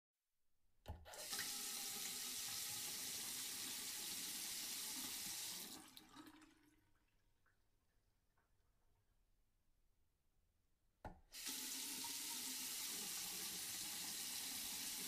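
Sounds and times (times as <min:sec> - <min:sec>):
tap water running into sink: 0:01.0 - 0:06.8, 0:11.2 - 0:15.0.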